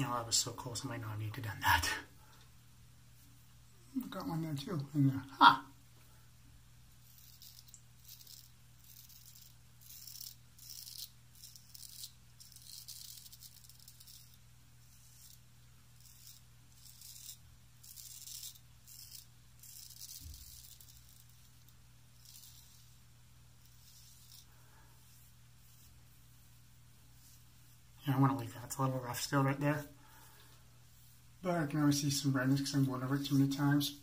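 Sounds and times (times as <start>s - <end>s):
razor scraping stubble: 7.0s - 33.8s.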